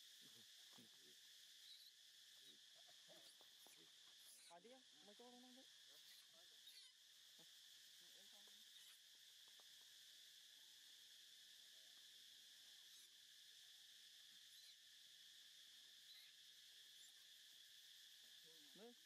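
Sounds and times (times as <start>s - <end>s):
insects chirping: 0.0s - 19.0s.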